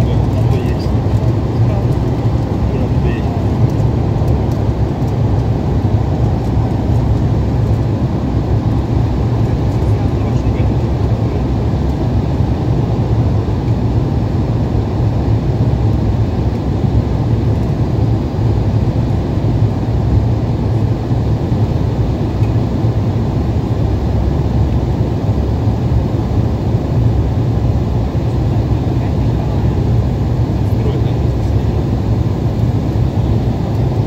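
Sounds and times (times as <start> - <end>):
airflow over fuselage: 0.0 - 34.0
airliner cabin engine drone: 0.0 - 34.0.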